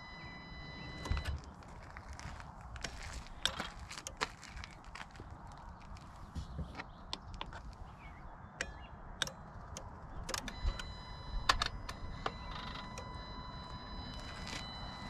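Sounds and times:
high electronic tone: 0.0 - 1.5, 10.4 - 15.0.

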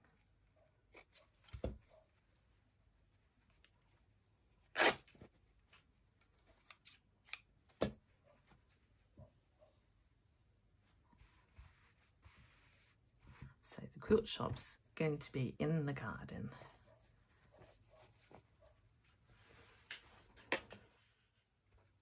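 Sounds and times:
fabric rustling: 10.7 - 14.2, 16.8 - 22.0.

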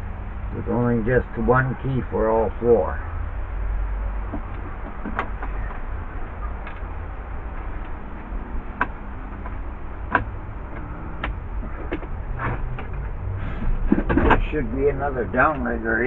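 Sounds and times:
steady low rumble: 0.0 - 16.0
gear clicks and knocks: 4.1 - 15.7.

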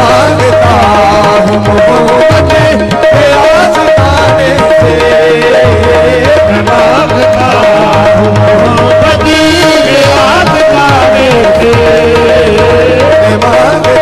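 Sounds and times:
harmonium drone and melody: 0.0 - 14.0
tabla drumming: 0.0 - 14.0.

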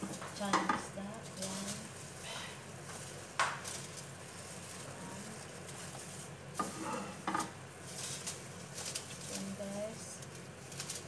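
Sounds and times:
spatula scraping a frying pan: 6.6 - 7.4.

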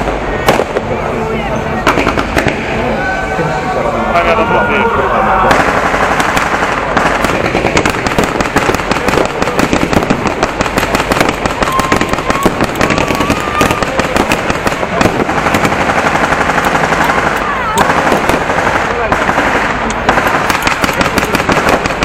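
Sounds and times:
blank gunfire: 1.9 - 2.6, 5.5 - 22.0.

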